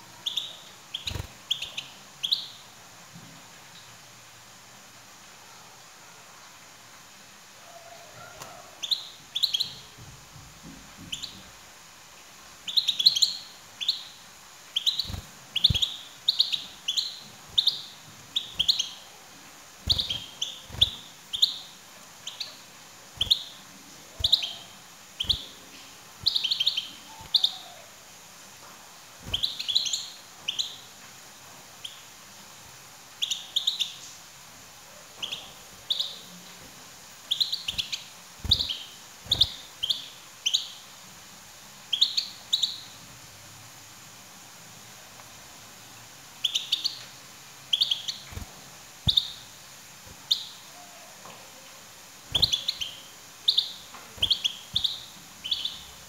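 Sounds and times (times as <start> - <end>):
goldfinch chirping: 0.2 - 2.6, 8.8 - 9.9, 12.6 - 19.1, 19.8 - 22.6, 23.2 - 25.6, 26.2 - 27.8, 29.2 - 30.8, 33.2 - 34.0, 35.2 - 36.3, 37.3 - 40.8, 41.9 - 43.0, 46.4 - 47.0, 47.7 - 49.5, 50.2 - 50.7, 52.3 - 56.0.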